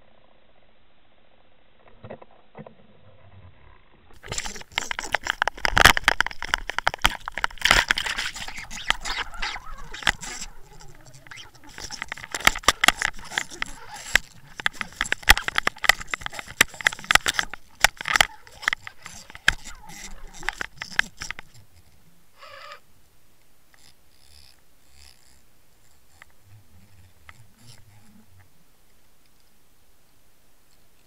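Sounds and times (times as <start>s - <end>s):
underwater clattering and knocking: 4.2s - 21.5s.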